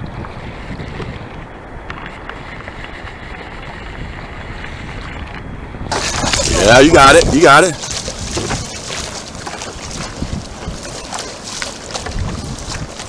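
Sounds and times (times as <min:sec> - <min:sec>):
choppy water lapping: 0:00.0 - 0:13.0
wind buffeting microphone: 0:00.0 - 0:13.0
faint drips and splashes: 0:05.9 - 0:13.0.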